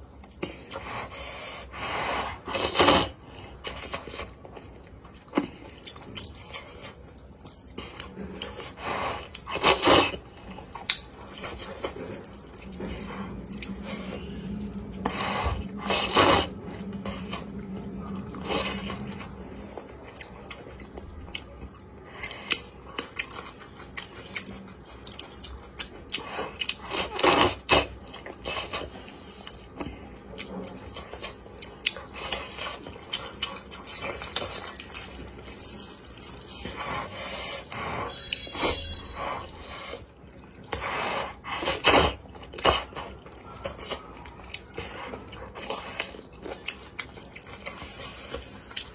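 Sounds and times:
chewing and wet mouth sounds: 0:00.0 - 0:48.9
person slurping noodles: 0:00.8 - 0:03.2, 0:12.9 - 0:17.4.

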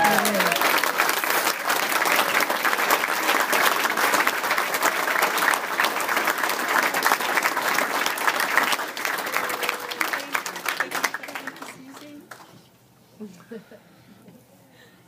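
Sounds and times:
cheering: 0:00.0 - 0:01.7, 0:08.6 - 0:10.6
audience applauding: 0:00.0 - 0:12.4.

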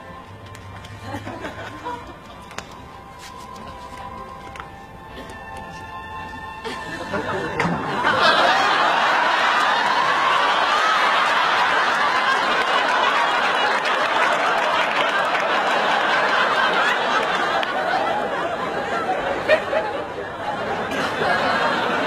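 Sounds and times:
audience laughing: 0:00.8 - 0:02.6, 0:06.4 - 0:22.0.

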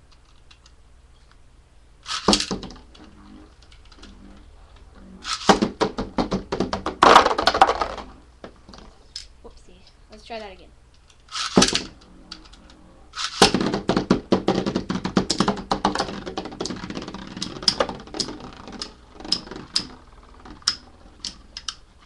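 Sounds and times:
metal spinning tops colliding: 0:02.0 - 0:03.1, 0:05.2 - 0:08.2, 0:11.3 - 0:12.5, 0:13.2 - 0:21.8
spinning tops launching: 0:02.0 - 0:06.0, 0:06.8 - 0:08.2, 0:11.2 - 0:22.0.

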